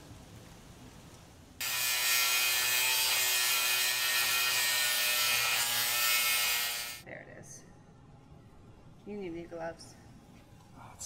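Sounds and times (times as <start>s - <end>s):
power grinder grinding metal: 1.6s - 7.0s.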